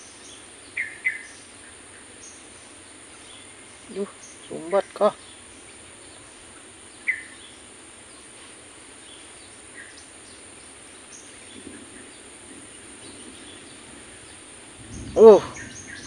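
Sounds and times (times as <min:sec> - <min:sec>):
high insect drone: 0:00.0 - 0:16.0
bird chirps: 0:03.1 - 0:08.3, 0:12.9 - 0:16.0.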